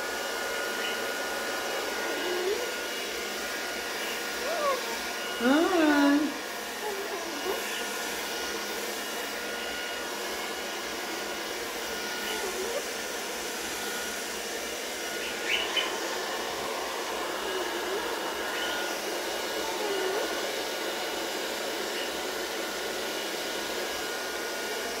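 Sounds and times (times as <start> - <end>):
hair dryer blowing: 0.0 - 25.0.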